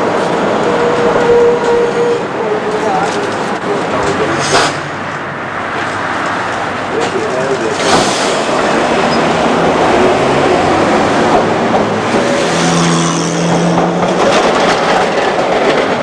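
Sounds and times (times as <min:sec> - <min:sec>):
tram wheels and motors running: 0:00.0 - 0:16.0
wheels clicking on rails: 0:10.8 - 0:16.0.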